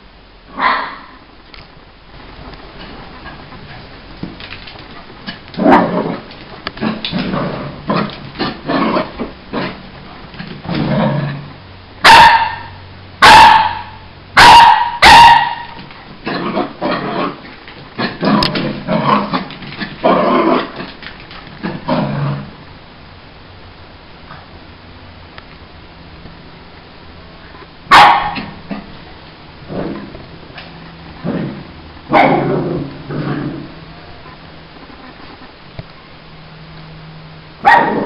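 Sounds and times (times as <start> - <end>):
dog barking loudly: 0.6 - 1.1, 12.0 - 15.9, 27.9 - 28.6, 32.1 - 32.6, 37.6 - 38.0.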